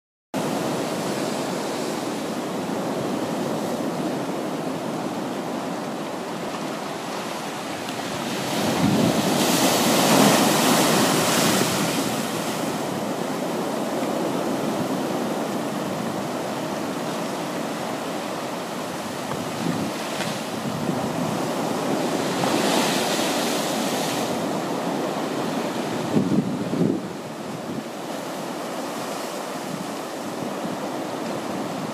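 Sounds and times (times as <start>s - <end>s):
waves breaking on rocky shore: 0.4s - 31.9s.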